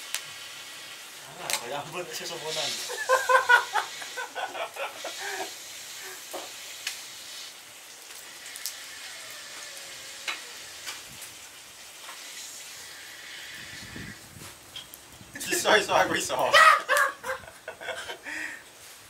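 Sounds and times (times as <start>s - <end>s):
fire crackling: 0.0s - 19.0s
food sizzling in a pan: 0.0s - 19.0s
loud voices and laughter: 2.8s - 5.5s, 16.4s - 18.2s.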